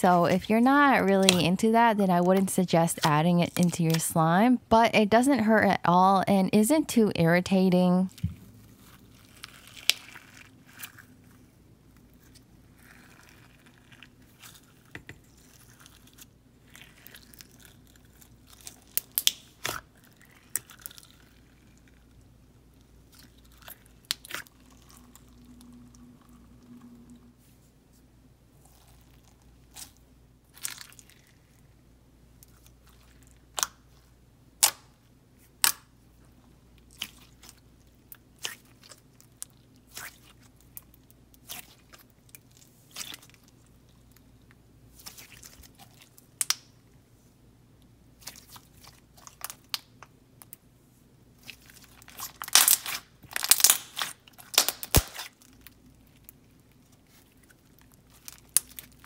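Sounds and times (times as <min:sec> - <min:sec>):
slime squishing: 0:00.0 - 0:04.1, 0:08.1 - 0:26.8, 0:28.6 - 0:31.7, 0:36.4 - 0:46.7, 0:48.1 - 0:50.6, 0:51.3 - 0:59.0.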